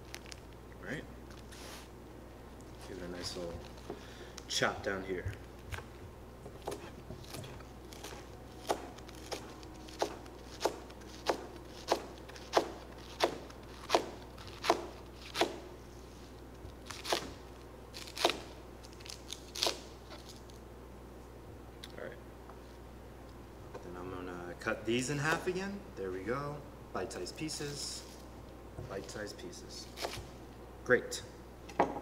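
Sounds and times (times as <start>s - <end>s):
knife chopping on cutting board: 6.5s - 15.6s, 29.9s - 30.3s.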